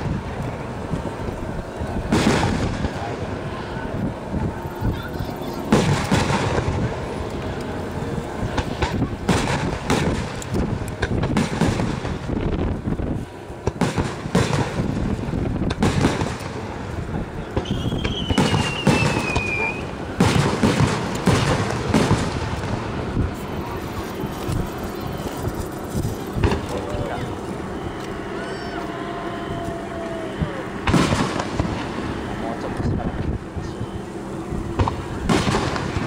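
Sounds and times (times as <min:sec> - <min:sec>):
fireworks booming and crackling: 0:00.0 - 0:28.4, 0:29.6 - 0:36.0
high falling firework whistle: 0:17.6 - 0:20.0, 0:27.7 - 0:31.9.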